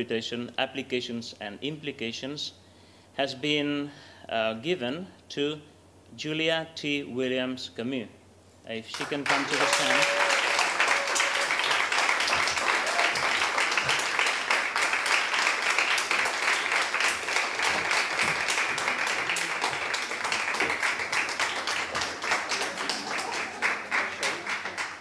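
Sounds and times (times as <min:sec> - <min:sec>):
audience applauding: 0:08.9 - 0:25.0.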